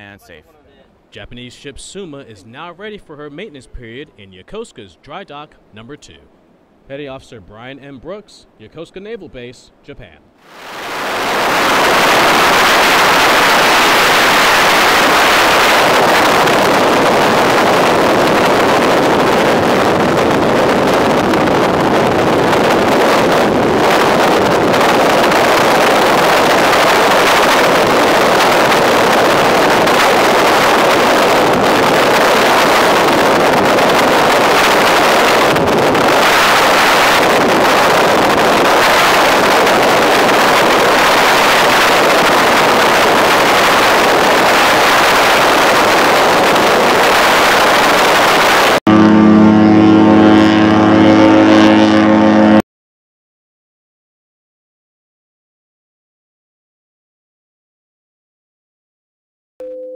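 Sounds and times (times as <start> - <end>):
water rushing past boat: 10.4 - 52.5
wind on microphone: 10.4 - 52.6
boat engine: 10.5 - 52.6.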